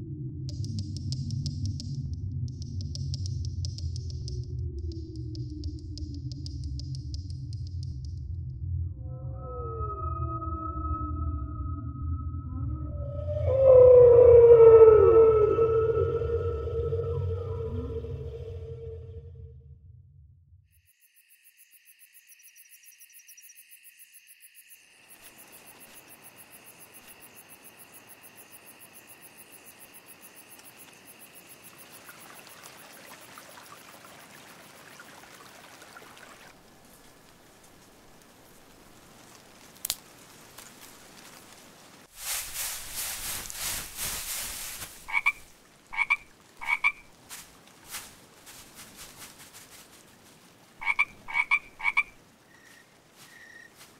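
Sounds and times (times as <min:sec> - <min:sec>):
frog croaking: 0:45.0 - 0:47.2, 0:50.8 - 0:52.2.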